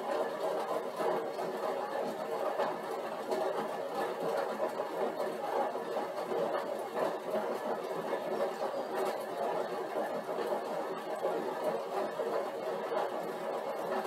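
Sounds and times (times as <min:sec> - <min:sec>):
exercise bike whirring: 0:00.0 - 0:14.0.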